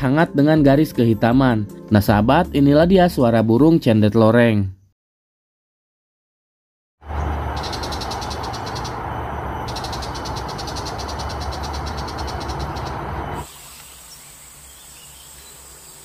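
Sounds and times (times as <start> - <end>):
bird rattling chatter: 7.6 - 9.0, 9.7 - 13.0.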